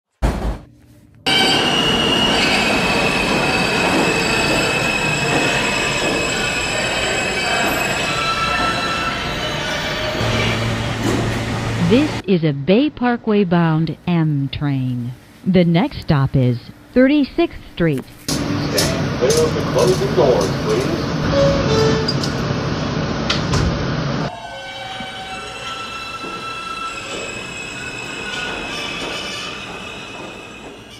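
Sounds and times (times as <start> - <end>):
train wheels squealing: 1.3 - 10.6, 24.3 - 30.9
train rumble: 1.5 - 12.2, 18.2 - 24.3, 24.9 - 30.9.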